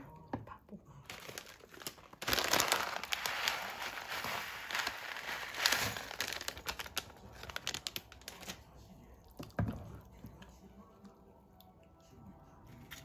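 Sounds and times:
plastic pouch crinkling: 0:01.1 - 0:08.6
dry grains spilling onto a plate: 0:02.3 - 0:06.8.

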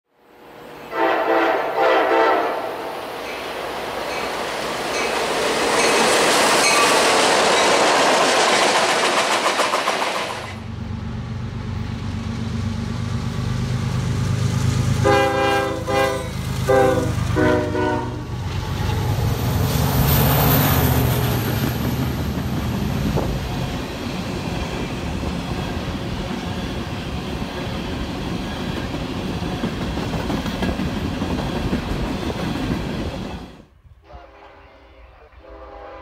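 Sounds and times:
diesel locomotives rumbling: 0:00.4 - 0:36.0
train wheels rushing on rail: 0:00.5 - 0:33.7
train horn blasts: 0:00.8 - 0:03.0, 0:15.0 - 0:18.4, 0:34.0 - 0:36.0.

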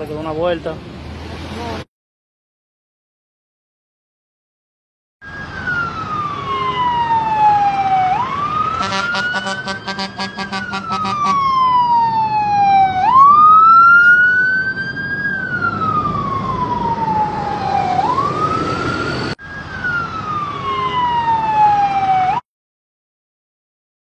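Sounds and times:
emergency siren wailing: 0:05.2 - 0:22.4.

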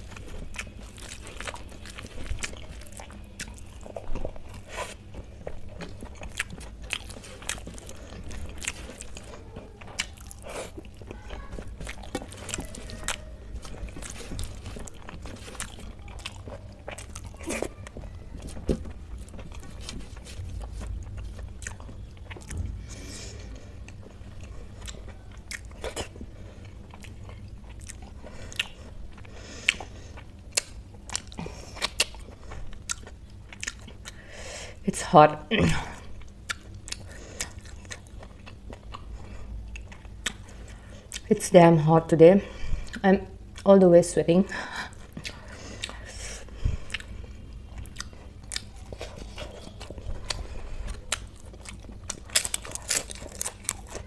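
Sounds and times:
chewing and biting: 0:00.0 - 0:34.2, 0:36.2 - 0:41.3, 0:44.9 - 0:54.0
steady low hum: 0:00.0 - 0:54.0
mouth clicks and crunches: 0:23.6 - 0:34.2, 0:45.0 - 0:54.0.

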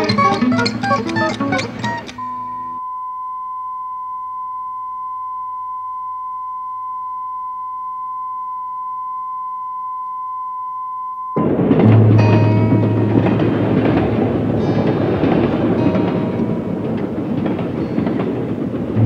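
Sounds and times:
steady test tone: 0:00.0 - 0:14.8
loud noise: 0:11.4 - 0:19.0.

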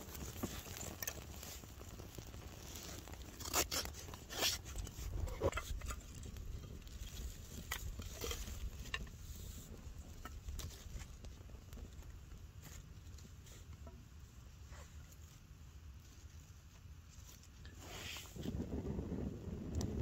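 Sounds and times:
sticks clicking onto flames: 0:00.0 - 0:12.2
sharp pops from fire: 0:00.0 - 0:12.9
fire crackling: 0:00.0 - 0:20.0.

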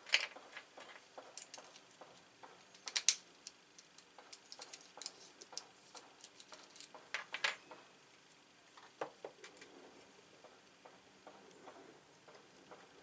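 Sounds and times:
lock parts clicking together: 0:01.3 - 0:01.9, 0:02.6 - 0:07.6.

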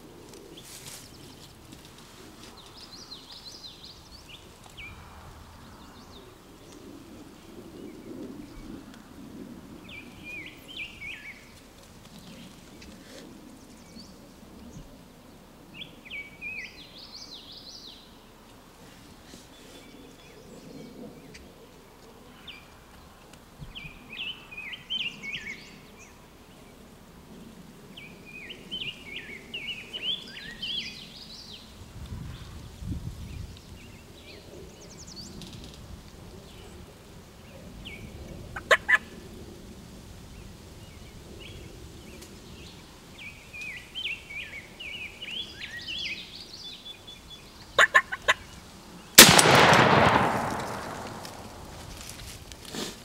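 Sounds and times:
turkey gobbling: 0:47.8 - 0:48.4
sharp clicks: 0:49.2 - 0:51.9
shotgun blast: 0:49.2 - 0:51.9.

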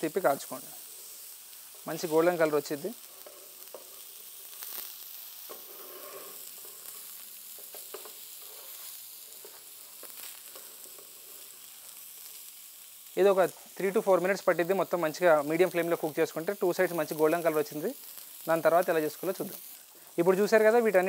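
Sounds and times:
patties sizzling in oil: 0:00.0 - 0:21.0.

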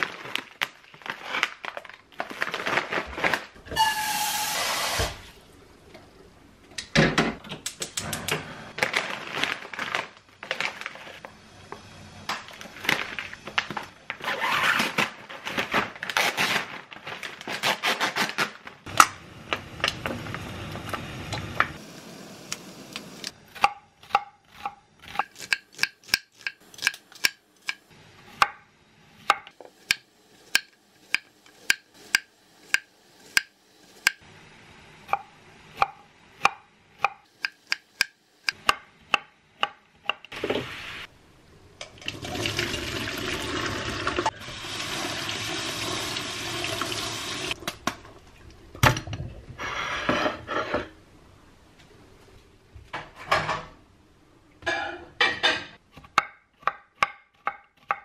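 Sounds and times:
plastic pouch tearing and crinkling: 0:00.0 - 0:03.6, 0:08.8 - 0:11.2, 0:14.2 - 0:18.8
tap water running into sink: 0:42.0 - 0:47.5.

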